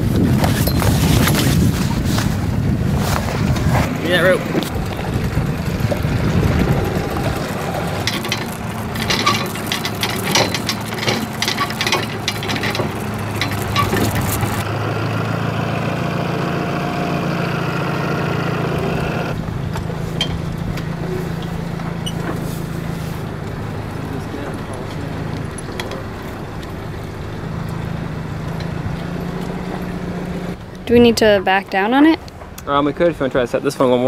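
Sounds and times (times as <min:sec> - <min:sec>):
boat motor running: 0:00.0 - 0:34.0
clicks and knocks: 0:07.1 - 0:14.7.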